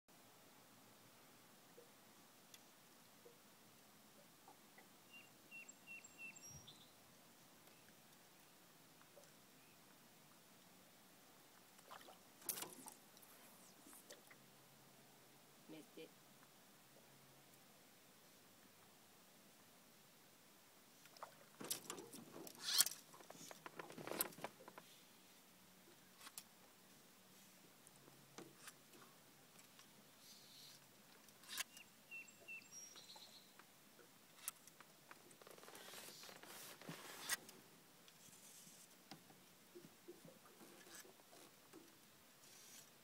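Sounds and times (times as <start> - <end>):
light water splashes: 11.5 - 14.5, 20.9 - 23.7
fishing gear clicks and rustles: 12.4 - 14.1, 21.6 - 24.9.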